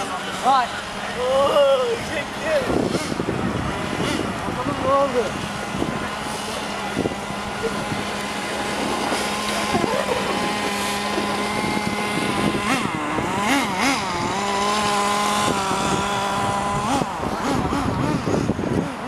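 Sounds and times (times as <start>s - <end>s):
rc car motors whining: 0.0s - 19.0s.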